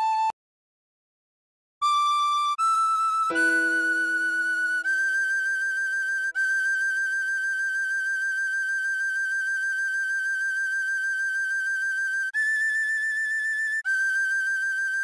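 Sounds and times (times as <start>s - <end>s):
tin whistle melody: 1.8s - 15.0s
soft low held chord: 3.3s - 6.3s.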